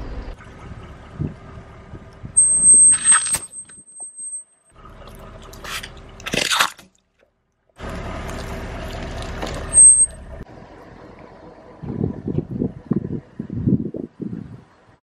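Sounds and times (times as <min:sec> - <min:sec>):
rolling car rumble: 0:00.0 - 0:06.6, 0:07.2 - 0:15.0.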